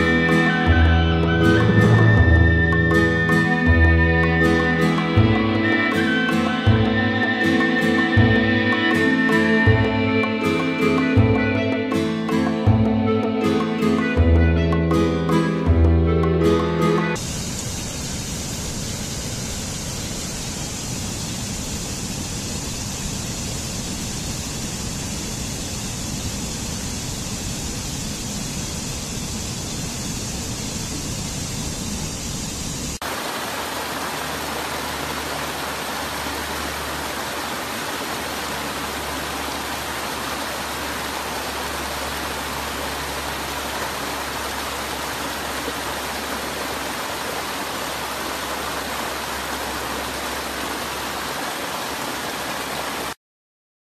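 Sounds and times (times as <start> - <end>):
water rushing down rocky stream: 33.0 - 53.2.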